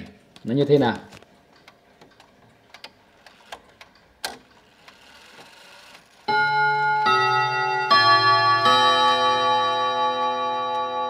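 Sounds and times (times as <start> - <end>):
clock chime train running: 6.3 - 11.0.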